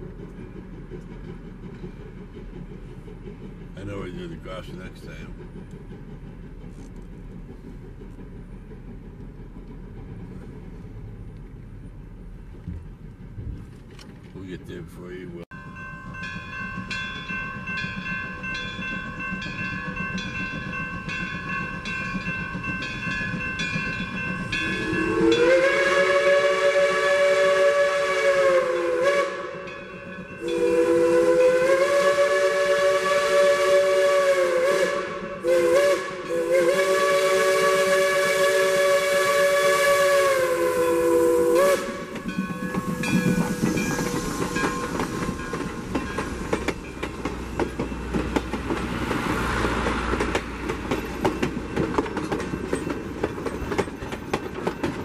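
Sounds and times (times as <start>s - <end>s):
train rumbling and clattering past: 0.0s - 55.0s
crossing signal bell dinging: 15.5s - 25.5s
steam locomotive chime whistle: 15.5s - 48.2s.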